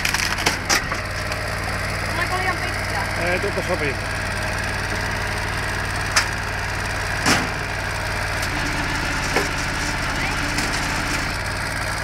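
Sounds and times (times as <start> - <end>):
small engine running: 0.0 - 12.0
log thudding into splitter chute: 7.1 - 11.3.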